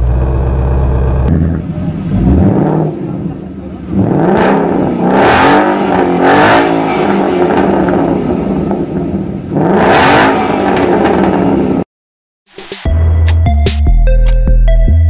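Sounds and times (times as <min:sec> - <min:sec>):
car engine idling: 0:00.0 - 0:05.0
car engine revving: 0:00.0 - 0:11.9.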